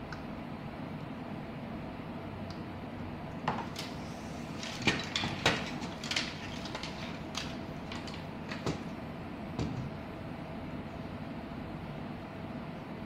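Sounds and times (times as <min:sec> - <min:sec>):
steady background noise: 0:00.0 - 0:13.0
circuit board knocking on wood: 0:09.6 - 0:10.0.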